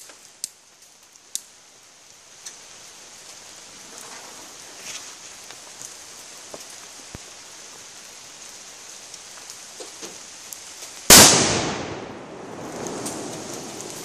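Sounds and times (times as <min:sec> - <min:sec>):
firecracker bang: 0:11.1 - 0:14.0.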